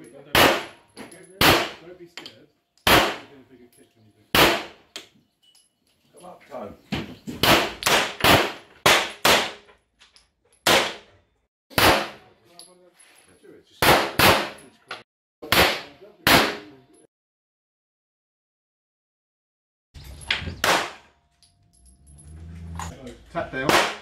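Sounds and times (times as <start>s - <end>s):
gunshots with echo: 0.3s - 0.8s, 1.4s - 1.8s, 2.9s - 3.3s, 4.3s - 4.8s, 7.4s - 9.6s, 20.6s - 21.1s, 23.6s - 24.0s.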